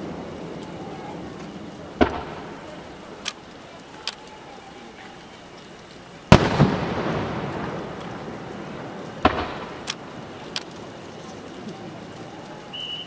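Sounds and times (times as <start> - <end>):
firework shells bursting: 0.0 - 13.0.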